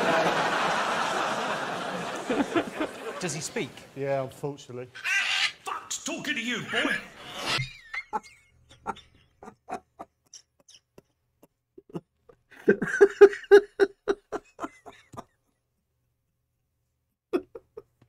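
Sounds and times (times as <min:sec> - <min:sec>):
man laughing hard: 0:07.8 - 0:15.4, 0:17.3 - 0:17.9.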